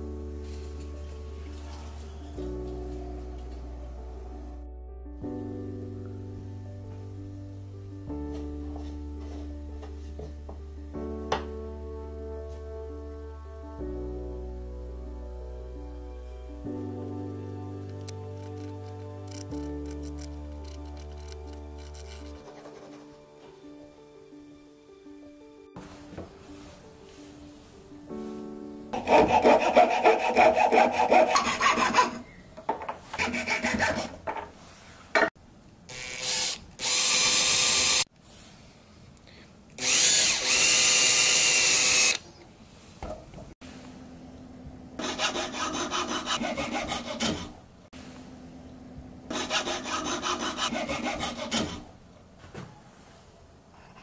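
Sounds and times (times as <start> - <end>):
hand saw cutting wood: 29.0 - 32.3, 33.2 - 34.2, 45.0 - 47.5, 49.3 - 51.9
cordless drill boring wood: 35.9 - 38.1, 39.8 - 42.2.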